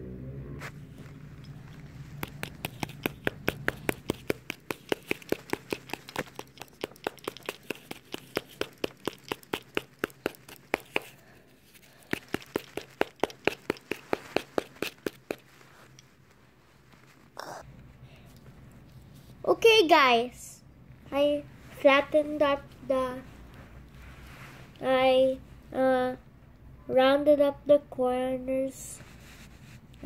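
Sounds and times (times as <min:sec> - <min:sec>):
hammer tapping foil ball: 0:02.0 - 0:15.6.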